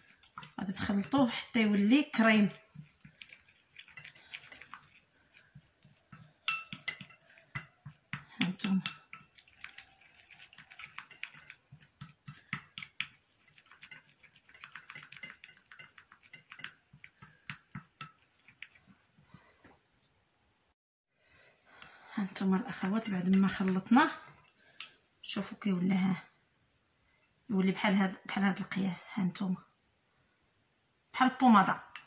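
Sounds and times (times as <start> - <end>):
spoon scraping ceramic bowl: 0.0 - 19.0, 21.8 - 25.0, 31.7 - 32.0.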